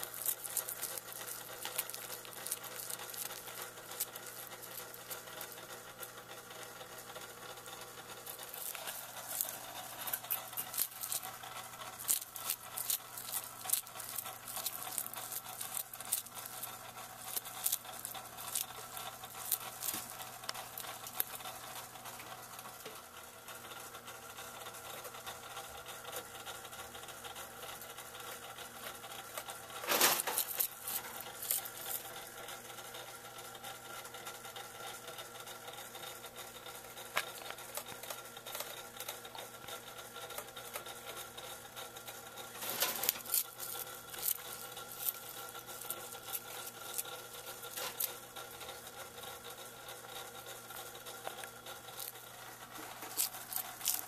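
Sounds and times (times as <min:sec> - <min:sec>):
crisp clicks: 0:00.0 - 0:05.7, 0:51.2 - 0:54.0
lizard crunching an insect: 0:00.0 - 0:22.8, 0:27.2 - 0:54.0
steady hum: 0:00.0 - 0:54.0.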